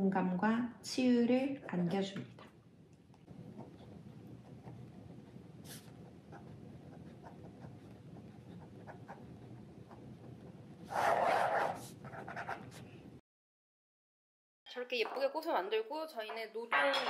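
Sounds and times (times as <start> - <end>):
pen scratching on paper: 3.5 - 12.9.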